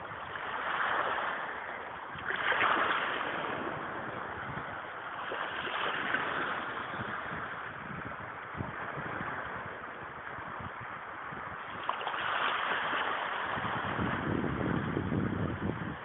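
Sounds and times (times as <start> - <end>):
sea water washing: 0.0 - 16.0
wind buffeting microphone: 0.0 - 16.0.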